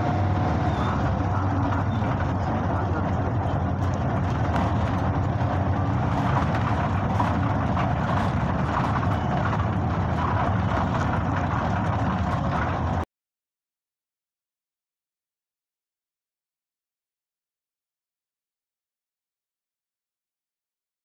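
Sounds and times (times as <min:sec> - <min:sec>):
bus engine and road noise: 0:00.0 - 0:13.1.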